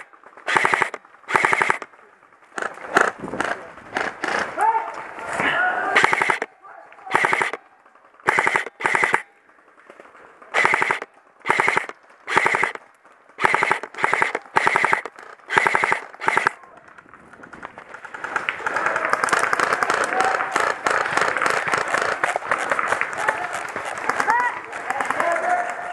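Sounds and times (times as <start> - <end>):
airsoft rifle full-auto bursts: 0.0 - 4.6, 5.8 - 9.8, 10.4 - 25.9
dense continuous crackle of clicks: 9.3 - 25.9.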